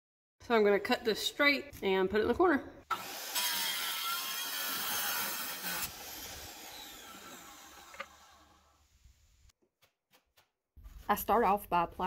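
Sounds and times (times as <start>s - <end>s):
tile saw grinding whine: 2.9s - 9.5s.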